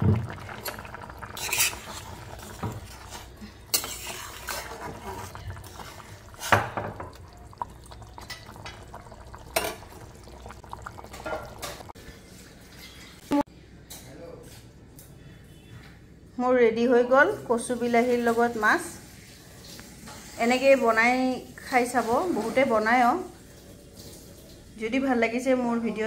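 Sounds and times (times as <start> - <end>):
spatula scraping a steel pot: 1.3 - 6.7.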